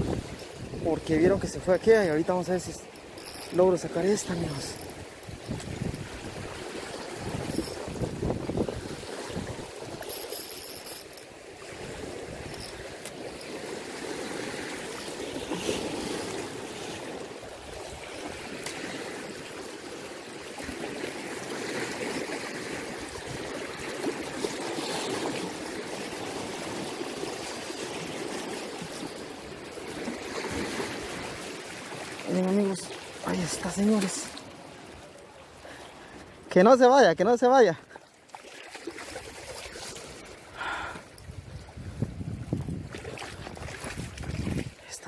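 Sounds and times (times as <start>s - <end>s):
turbulent water rushing: 0.0s - 41.0s.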